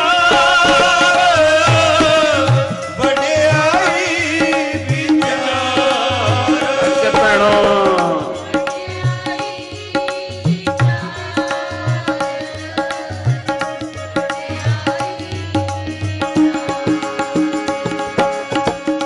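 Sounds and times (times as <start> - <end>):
man singing a hymn: 0.0 - 8.7
harmonium drone: 0.0 - 19.0
tabla: 0.0 - 19.0.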